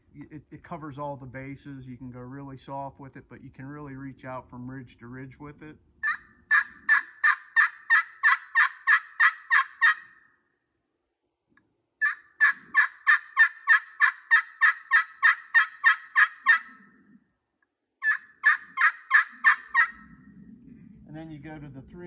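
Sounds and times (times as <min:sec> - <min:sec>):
turkey call yelps: 0:06.0 - 0:10.4, 0:12.0 - 0:17.2, 0:18.0 - 0:21.0.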